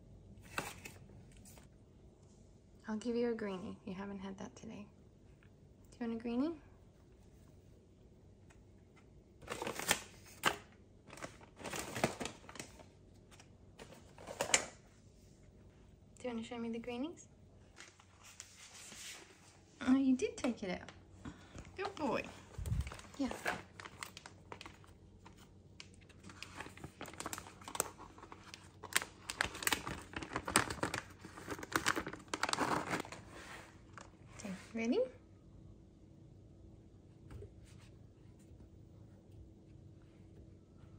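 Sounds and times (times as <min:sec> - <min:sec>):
plastic packaging crinkling: 0:09.4 - 0:14.8, 0:21.8 - 0:34.3.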